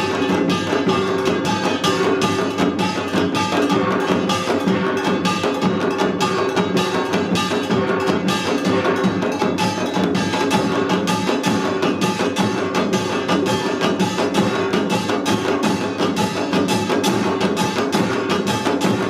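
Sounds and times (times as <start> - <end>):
drums beating fast: 0.0 - 19.0
small gongs clanging: 0.0 - 19.0.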